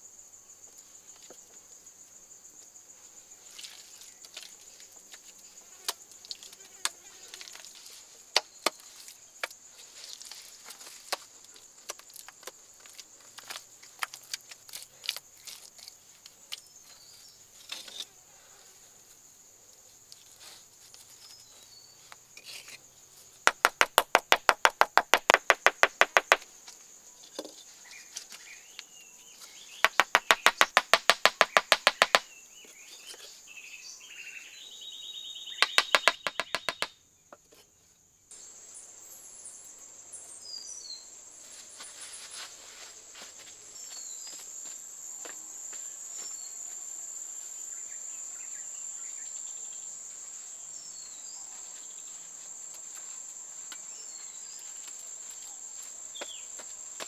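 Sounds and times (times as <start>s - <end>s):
insect drone: 0.0s - 57.0s
rapid even tapping: 23.5s - 26.4s, 29.8s - 32.2s, 35.6s - 36.9s.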